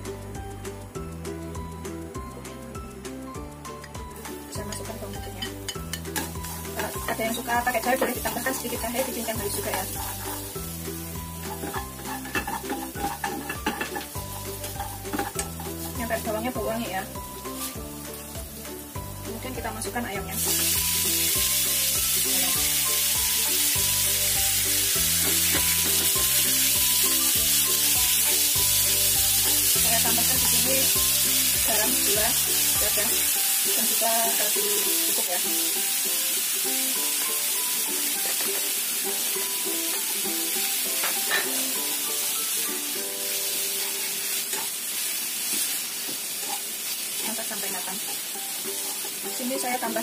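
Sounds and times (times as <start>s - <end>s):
light background music: 0.0s - 50.0s
meat sizzling in a frying pan: 0.0s - 50.0s
spatula stirring in pan: 8.0s - 16.0s, 43.8s - 47.3s.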